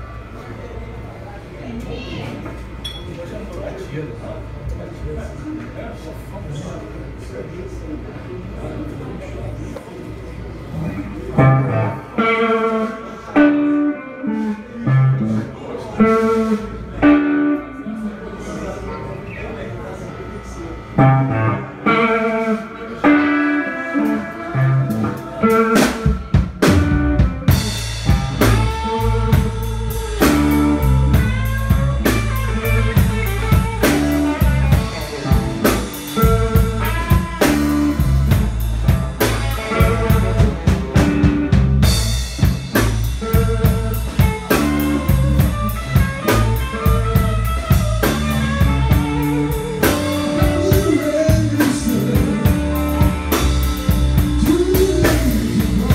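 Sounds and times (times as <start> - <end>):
electric guitar lines: 9.6 - 55.9
bass guitar: 10.4 - 55.9
drums with cymbals: 24.0 - 55.9.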